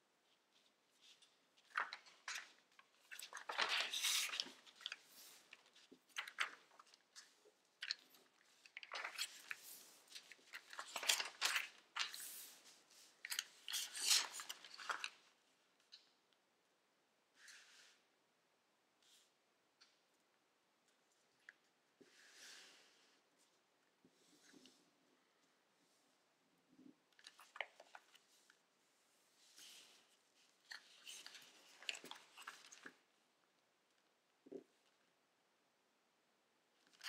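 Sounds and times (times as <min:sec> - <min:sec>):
paper rustling and crinkling: 0:00.4 - 0:15.3, 0:29.5 - 0:33.1
paper crunching: 0:03.0 - 0:05.5.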